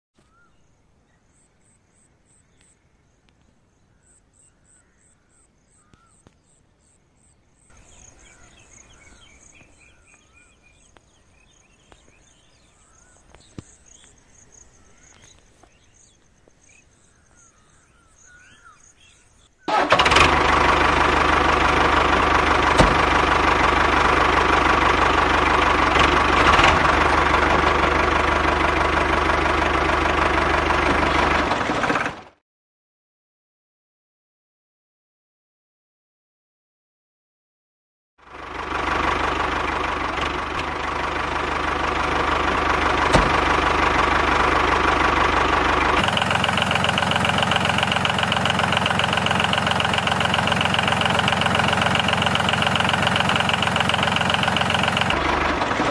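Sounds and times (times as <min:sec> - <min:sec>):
faint bird chirps: 0:00.2 - 0:19.7
motor running with low hum: 0:20.0 - 0:31.7, 0:38.3 - 0:55.9.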